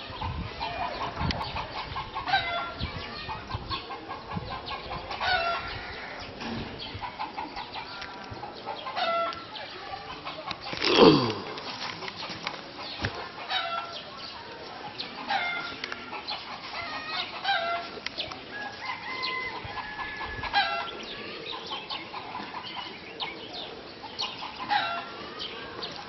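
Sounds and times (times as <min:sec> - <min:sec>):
chickens clucking: 0:00.0 - 0:26.0.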